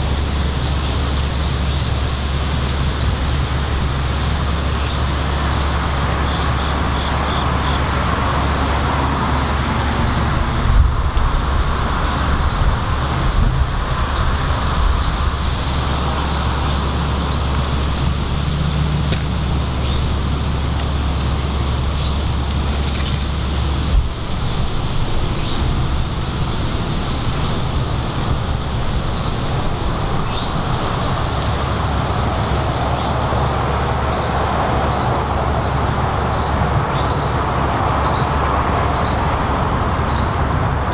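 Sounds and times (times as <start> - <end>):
insects high drone: 0.0 - 40.9
low rumble of road traffic: 0.0 - 40.9.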